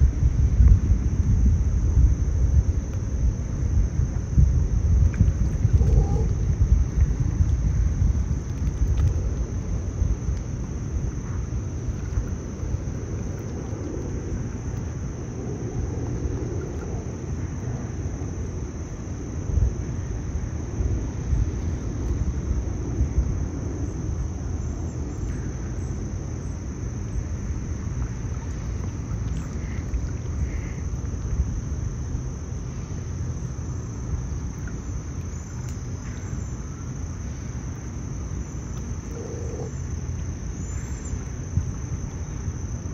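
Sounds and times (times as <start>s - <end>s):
low uneven rumble: 0.0s - 42.9s
high-pitched insect drone: 38.0s - 41.6s.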